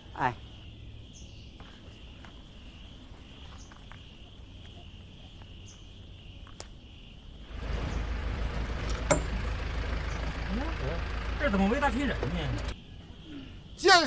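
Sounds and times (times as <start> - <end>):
crickets trilling: 0.0 - 14.0
truck engine rumble: 7.5 - 12.8.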